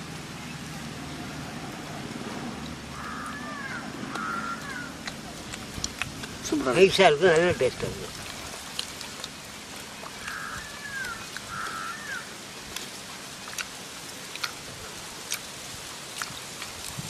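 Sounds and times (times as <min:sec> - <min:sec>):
steady outdoor hiss: 0:00.0 - 0:17.0
bird calling: 0:02.9 - 0:05.2, 0:10.1 - 0:12.3.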